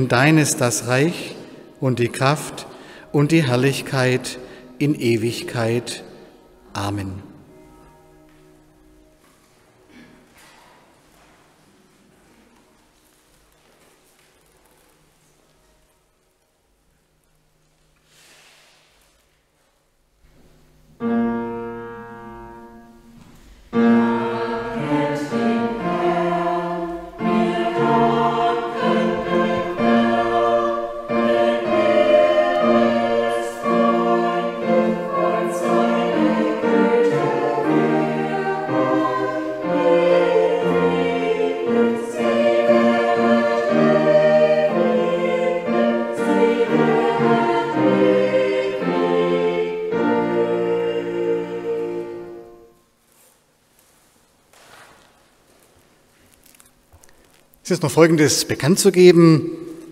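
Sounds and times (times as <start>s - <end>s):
choir singing in harmony: 0.0s - 7.5s, 23.7s - 52.8s.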